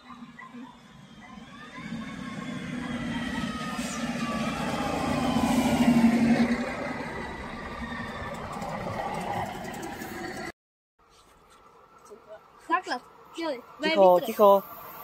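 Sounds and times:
diesel railcar passing: 0.0s - 10.5s, 12.9s - 15.0s
falling whine: 0.0s - 10.5s.

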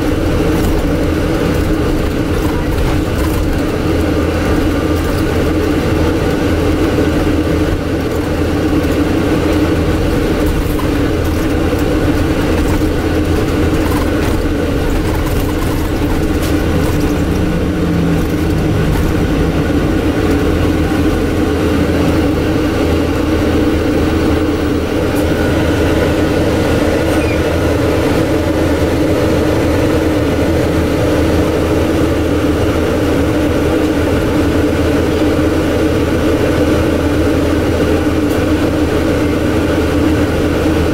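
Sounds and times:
air conditioning drone: 0.0s - 40.9s
faint bus engine: 0.0s - 40.9s.

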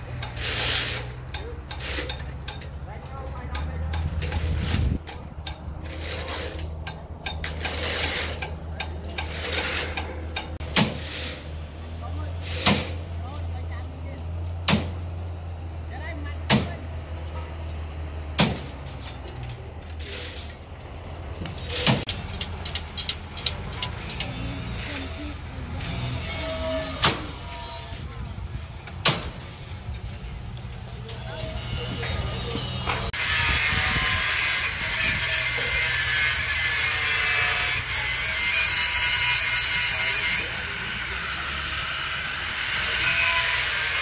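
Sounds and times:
metallic clanks of steel rebar: 0.0s - 11.4s, 18.4s - 28.2s.

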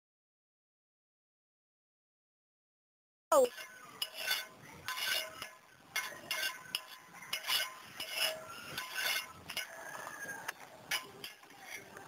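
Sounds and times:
metal spoon scraping a wok: 3.5s - 12.0s.

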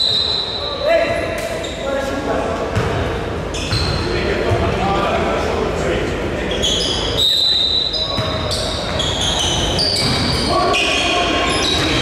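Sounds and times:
basketball bouncing: 2.7s - 3.0s, 8.1s - 9.0s, 10.0s - 10.3s
sneakers squeaking on hardwood: 2.8s - 4.1s, 6.6s - 12.0s.

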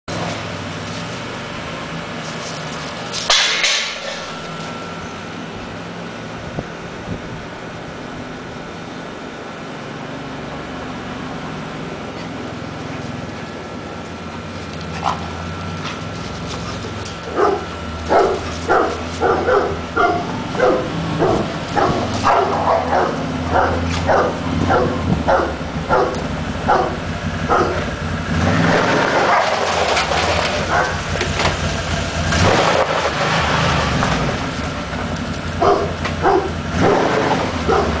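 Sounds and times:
rough continuous noise: 0.1s - 38.0s
dogs barking: 17.3s - 28.0s, 28.7s - 29.7s, 30.6s - 31.1s, 35.6s - 38.0s.

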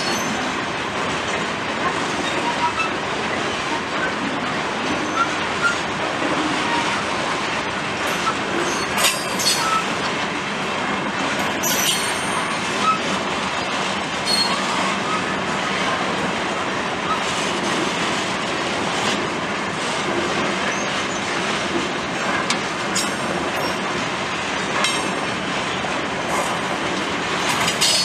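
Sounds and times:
freight train rumbling on rails: 0.0s - 28.0s
high-pitched wheel squeals: 8.1s - 9.9s, 14.2s - 15.3s.

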